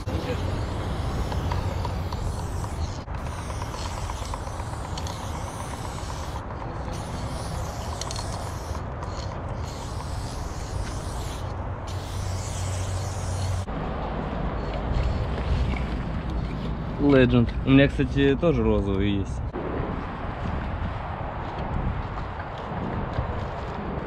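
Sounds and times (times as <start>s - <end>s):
aerosol spray can hissing: 0.0s - 13.7s
steady low rumble: 8.2s - 24.0s.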